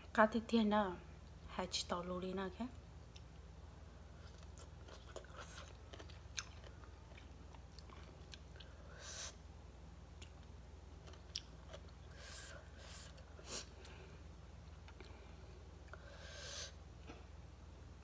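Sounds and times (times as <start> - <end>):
person chewing food: 4.1 - 9.0, 10.1 - 16.1.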